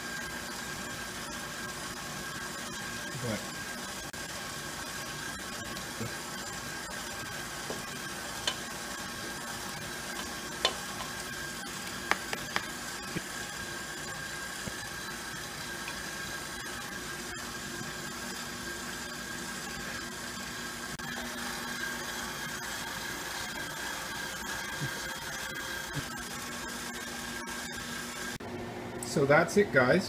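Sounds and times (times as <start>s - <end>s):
stand mixer humming: 0.0s - 30.0s.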